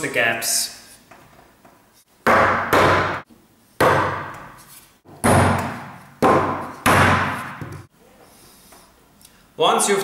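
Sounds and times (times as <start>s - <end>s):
sharp wooden knocks: 2.2s - 3.2s, 3.8s - 4.5s, 5.1s - 7.9s.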